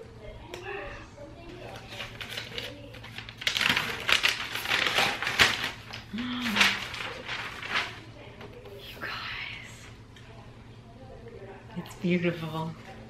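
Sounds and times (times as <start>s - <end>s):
paper wrap crinkling and tearing: 1.5s - 8.3s.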